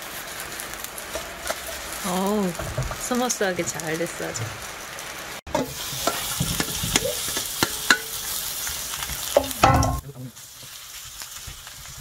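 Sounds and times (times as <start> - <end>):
batter sizzling in hot oil: 0.0 - 12.0
metal spatula scraping pan: 5.5 - 8.4.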